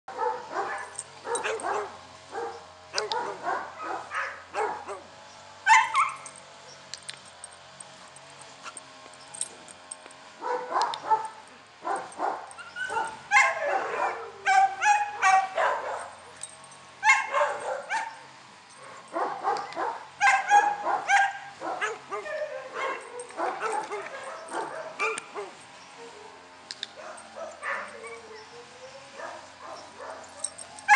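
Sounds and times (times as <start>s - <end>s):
dog barking and yipping: 0.1s - 6.4s, 10.4s - 26.4s, 27.0s - 30.9s.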